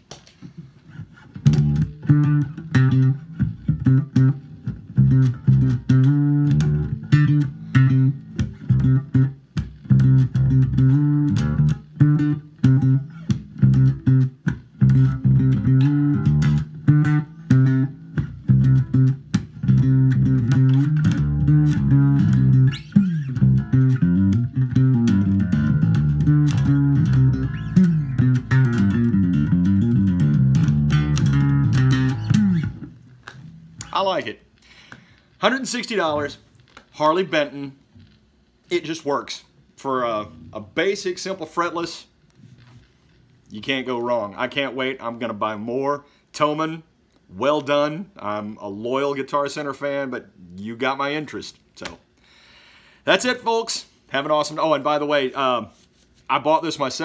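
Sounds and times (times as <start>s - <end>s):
fretless electric bass plucked: 1.0s - 34.0s.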